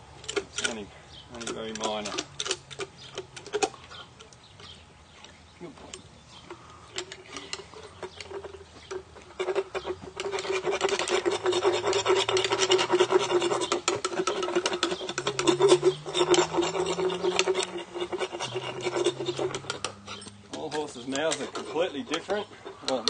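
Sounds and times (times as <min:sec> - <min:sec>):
hand rasp filing horse teeth: 0:07.0 - 0:23.0.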